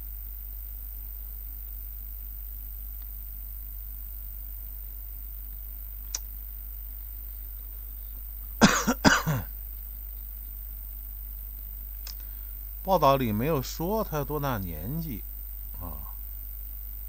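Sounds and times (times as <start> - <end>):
man coughing: 8.6 - 9.5
faint click: 11.9 - 12.3.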